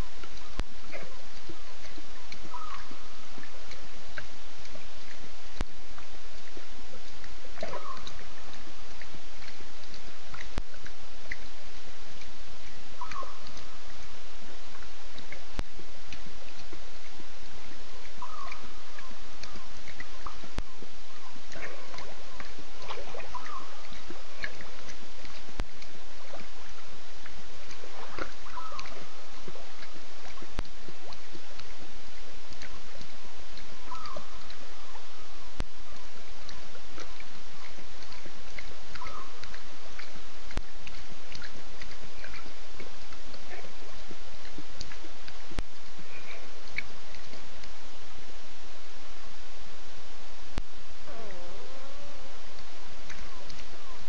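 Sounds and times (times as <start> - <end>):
insect or frog chirps: 0.0 - 48.0
steady hiss: 0.0 - 54.0
animal call: 0.3 - 3.2, 7.6 - 8.5, 13.0 - 14.0, 17.9 - 25.4, 27.7 - 30.6, 33.8 - 40.1, 51.0 - 54.0.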